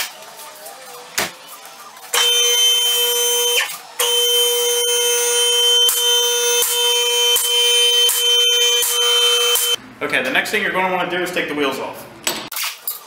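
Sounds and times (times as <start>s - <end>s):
hydraulic pump whining: 2.1s - 9.8s.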